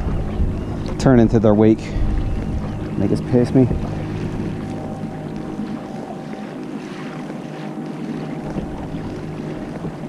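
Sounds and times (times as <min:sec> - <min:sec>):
wind on microphone: 0:00.0 - 0:06.2
outboard motor humming: 0:00.0 - 0:10.0
water noise: 0:00.0 - 0:10.0.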